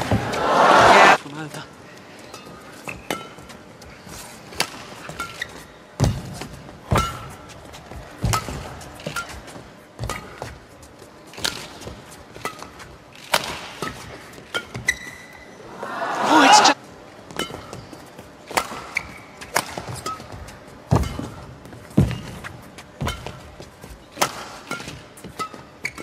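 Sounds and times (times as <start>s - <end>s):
crowd cheering: 0.0s - 1.2s, 15.6s - 16.8s
shoes squeaking on court floor: 2.2s - 13.0s, 13.8s - 15.7s, 17.3s - 26.0s.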